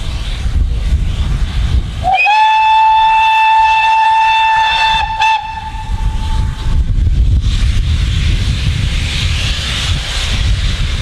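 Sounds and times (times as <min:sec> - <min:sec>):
steam whistle blast: 0:02.0 - 0:06.6.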